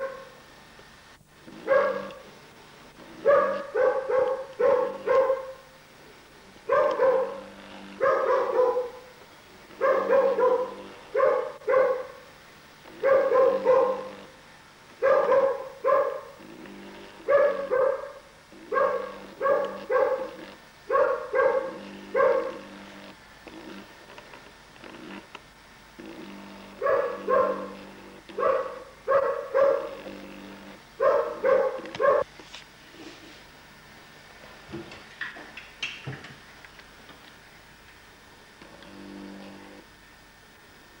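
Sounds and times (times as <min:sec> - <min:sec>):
dog barking: 0:00.0 - 0:00.4, 0:01.6 - 0:02.2, 0:03.2 - 0:05.7, 0:06.7 - 0:09.1, 0:09.8 - 0:12.2, 0:13.0 - 0:14.3, 0:15.0 - 0:16.4, 0:17.2 - 0:22.6, 0:26.8 - 0:30.1, 0:31.0 - 0:32.3.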